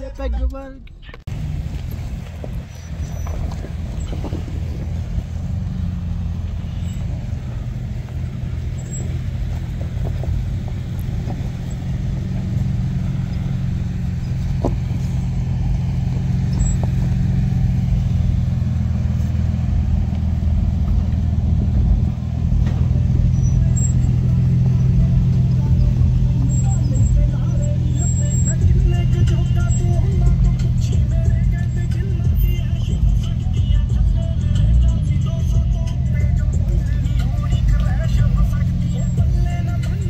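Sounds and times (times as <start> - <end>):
truck engine humming: 0.0 - 40.0.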